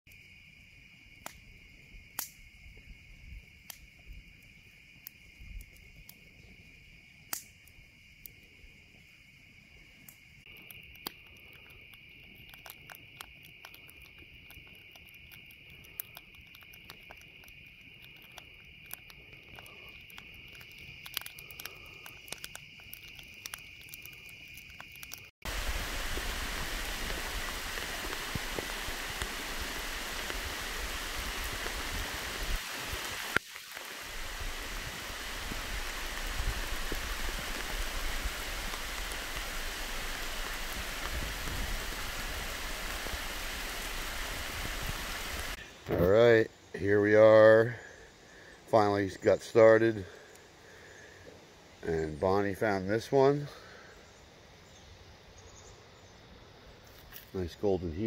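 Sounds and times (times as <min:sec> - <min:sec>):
campfire crackling and popping: 0:00.1 - 0:46.1
night insects chirping: 0:00.1 - 0:58.0
waterfall rushing over rocks: 0:25.5 - 0:45.6.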